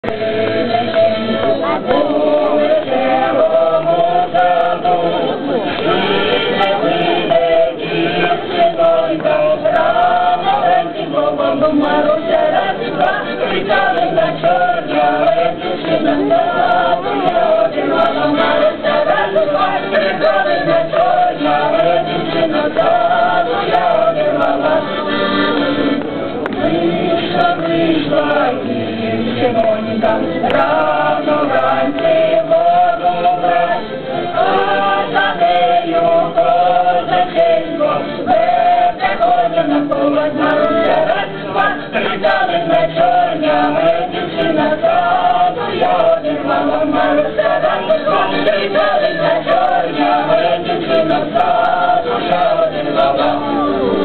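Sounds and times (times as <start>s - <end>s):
live folk music: 0.0s - 54.0s.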